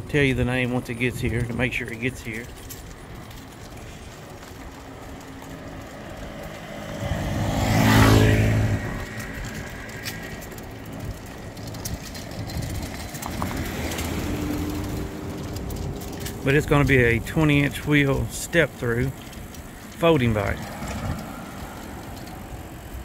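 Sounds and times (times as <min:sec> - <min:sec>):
car passing by: 0:05.4 - 0:11.8, 0:12.9 - 0:16.8, 0:19.5 - 0:23.0.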